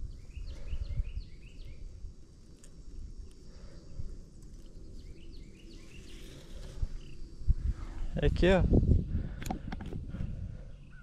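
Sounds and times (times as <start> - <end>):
bird chirping: 0.0 - 2.0, 4.6 - 7.3.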